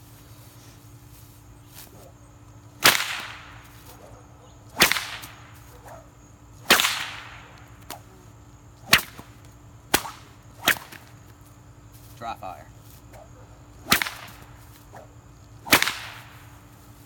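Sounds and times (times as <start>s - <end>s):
whip cracking: 2.8s - 8.2s, 8.8s - 11.2s, 13.1s - 16.5s.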